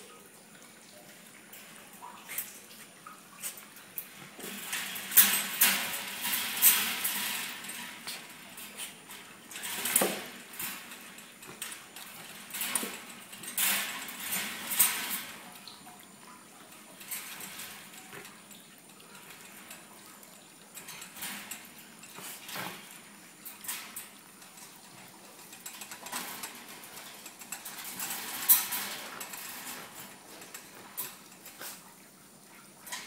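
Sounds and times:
wire cage rattling: 3.4 - 31.8
dog claws scrabbling on wire: 16.8 - 31.8.

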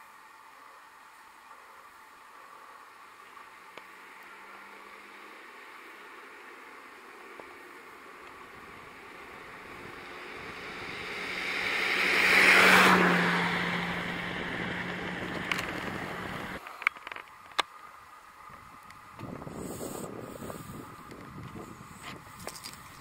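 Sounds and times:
motor vehicle passing: 3.3 - 16.6.

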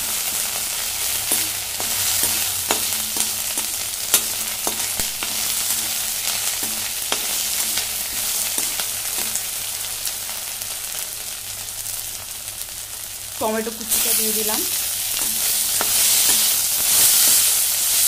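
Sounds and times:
onions sizzling in oil: 0.0 - 18.0
metal spatula scraping a pan: 14.4 - 18.0.

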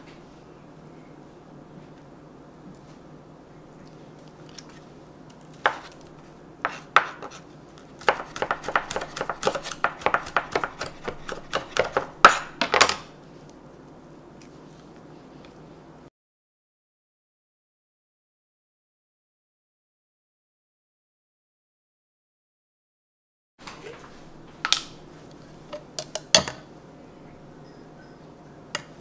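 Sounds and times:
knife chopping on wooden board: 5.6 - 6.0, 6.6 - 7.4, 8.0 - 13.0.

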